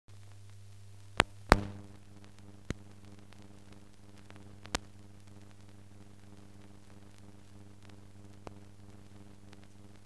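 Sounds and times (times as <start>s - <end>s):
low mains hum: 0.1s - 10.0s
sharp clicks: 1.2s - 3.4s, 4.2s - 4.9s.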